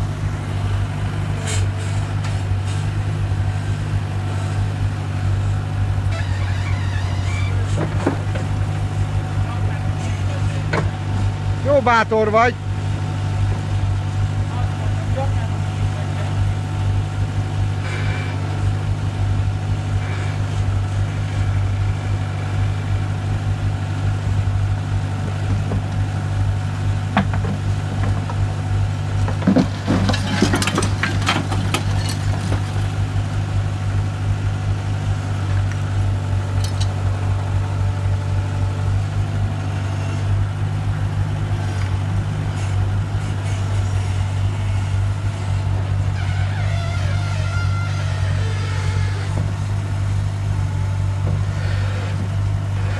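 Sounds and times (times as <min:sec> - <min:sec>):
skid-steer loader engine running: 0:00.0 - 0:52.9
rubble clattering into metal truck bed: 0:29.1 - 0:33.0.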